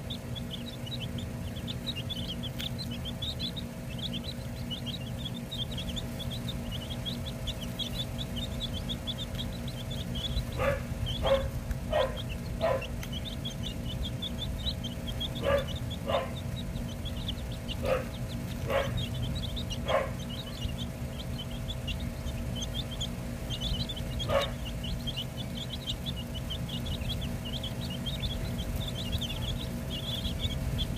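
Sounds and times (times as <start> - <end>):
baby chicks peeping: 0.0 - 30.9
dog barking: 10.5 - 12.9, 15.4 - 16.4, 17.8 - 19.0, 19.8 - 20.2, 24.2 - 24.6.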